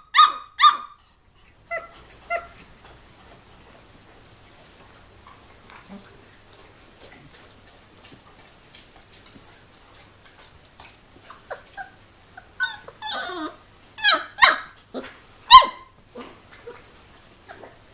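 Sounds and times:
puppies yipping and squealing: 0:00.0 - 0:03.8, 0:08.1 - 0:17.9.

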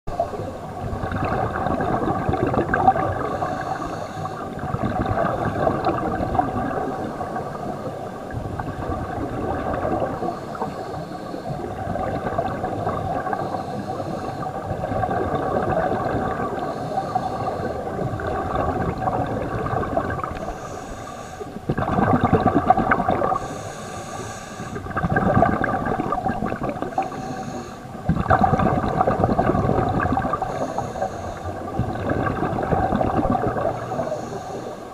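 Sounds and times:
exhaled bubbles bursting: 0:00.1 - 0:03.6, 0:04.4 - 0:10.3, 0:11.6 - 0:13.5, 0:14.4 - 0:20.6, 0:21.6 - 0:23.5, 0:24.7 - 0:27.2, 0:28.0 - 0:30.8, 0:31.4 - 0:34.2
underwater hum: 0:00.1 - 0:34.9
regulator breathing: 0:13.3 - 0:14.6, 0:16.5 - 0:17.9, 0:20.4 - 0:21.6, 0:23.4 - 0:24.8, 0:26.9 - 0:28.0, 0:30.4 - 0:31.7, 0:33.7 - 0:34.9.

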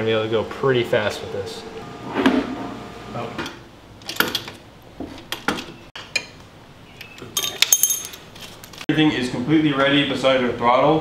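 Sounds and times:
metallic clinks of hand tools: 0:07.4 - 0:08.2.

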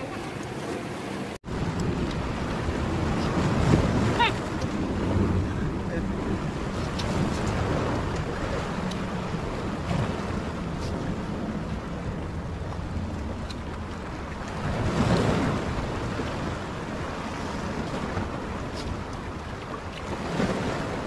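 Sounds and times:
sea surf washing on shore: 0:00.0 - 0:21.0
wind rumbling on microphone: 0:00.0 - 0:21.0.

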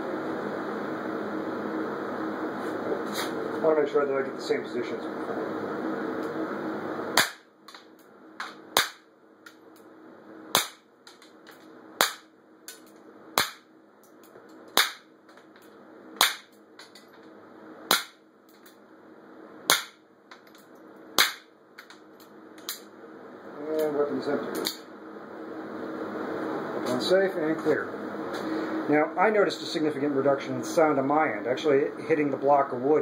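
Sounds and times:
bullets hitting wooden block: 0:16.2 - 0:16.5, 0:19.7 - 0:20.0.

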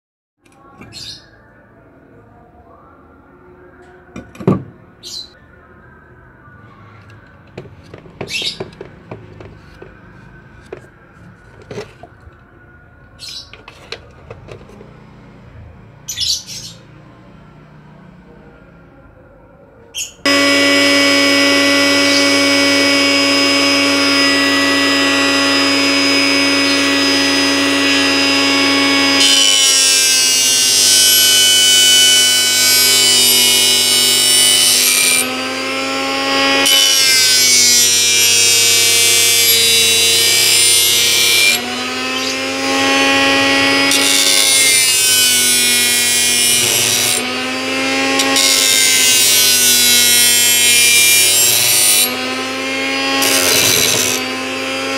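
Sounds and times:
blender motor whining: 0:20.3 - 0:54.9
knife blade grinding on disc: 0:53.1 - 0:54.5.

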